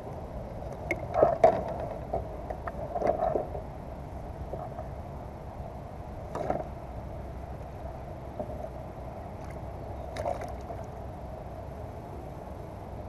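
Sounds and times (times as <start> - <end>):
steady low rumble: 0.0 - 13.0
paddle dipping into water: 9.4 - 11.0.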